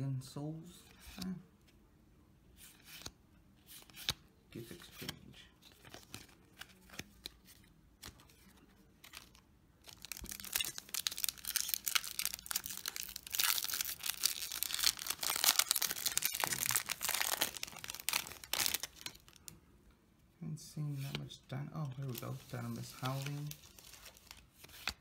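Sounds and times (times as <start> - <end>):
foil pack crinkling and tearing: 9.9 - 19.4.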